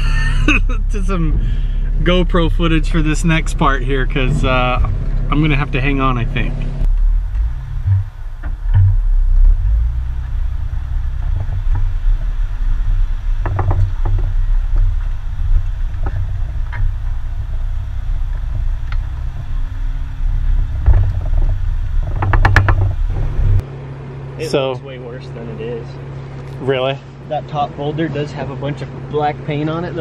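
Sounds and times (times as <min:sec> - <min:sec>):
vehicle engine low rumble: 0:00.0 - 0:30.0
knocks and rattles: 0:06.8 - 0:23.6.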